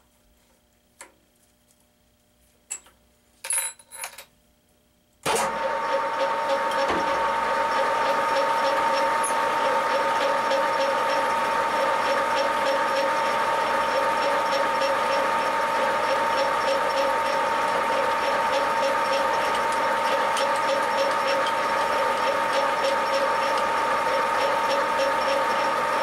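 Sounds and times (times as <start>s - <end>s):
metal lathe gear whine: 5.6s - 26.0s.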